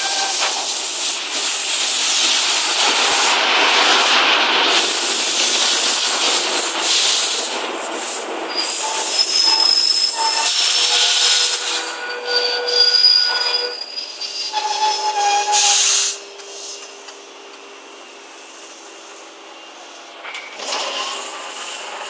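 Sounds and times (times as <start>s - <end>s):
high wheel squeal: 0.0s - 0.8s, 8.5s - 16.2s
train wheels rushing on rails: 0.0s - 12.2s, 13.0s - 22.0s.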